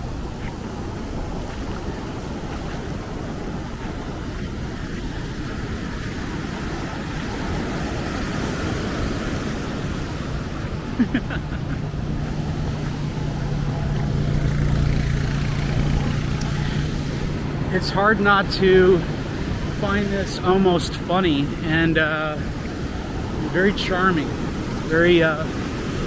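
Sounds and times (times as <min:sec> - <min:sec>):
quad bike engine humming: 0:00.0 - 0:26.0
surf breaking on sand: 0:00.0 - 0:26.0.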